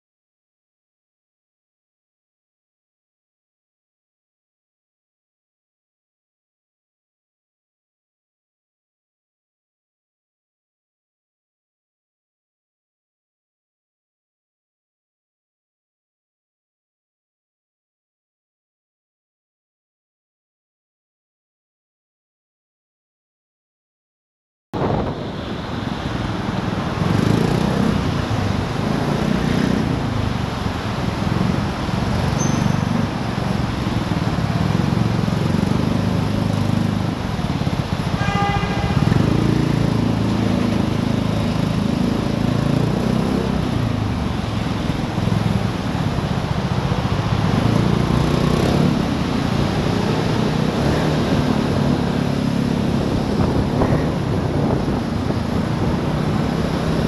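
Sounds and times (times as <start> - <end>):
road and wind noise: 24.8 - 57.0
scooter engine running: 27.0 - 57.0
short horn beep: 38.1 - 39.2.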